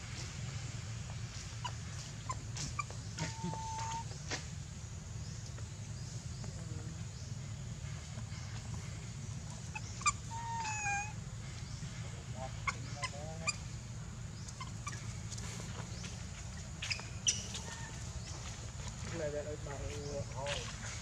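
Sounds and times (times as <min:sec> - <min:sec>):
infant monkey crying: 0:01.6 - 0:04.1, 0:09.6 - 0:11.2, 0:12.4 - 0:13.8, 0:14.5 - 0:15.2.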